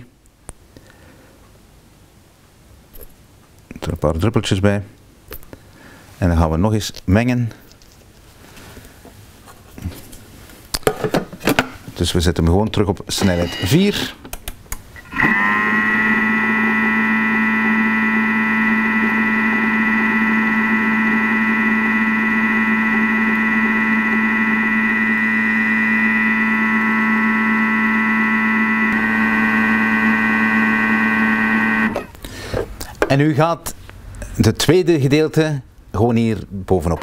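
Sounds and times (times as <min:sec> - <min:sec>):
food processor motor whine: 0:15.0 - 0:32.2.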